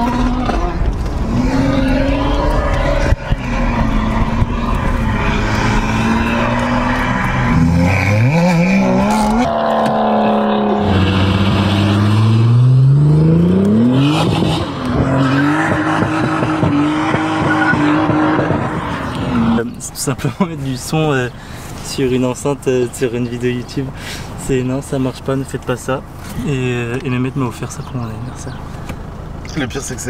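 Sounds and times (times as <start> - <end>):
sports car engine through speaker: 0.0 - 30.0.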